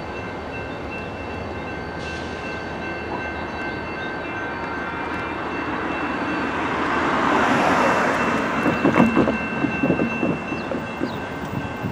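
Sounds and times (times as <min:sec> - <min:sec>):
crossing bell ringing: 0:00.0 - 0:11.9
diesel locomotive engines: 0:00.0 - 0:11.9
train wheels clacking on rails: 0:02.0 - 0:11.9.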